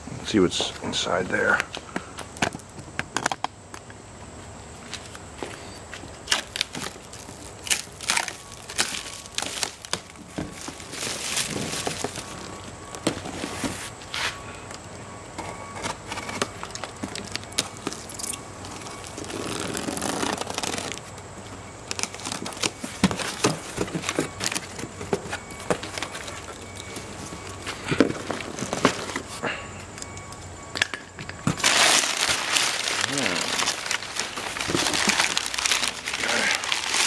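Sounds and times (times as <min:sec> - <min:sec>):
plastic wrap crinkling and tearing: 0:06.0 - 0:12.7, 0:16.5 - 0:21.2, 0:21.8 - 0:24.9, 0:31.6 - 0:37.0
packing paper rustling: 0:06.0 - 0:14.4, 0:15.8 - 0:29.4, 0:31.5 - 0:37.0.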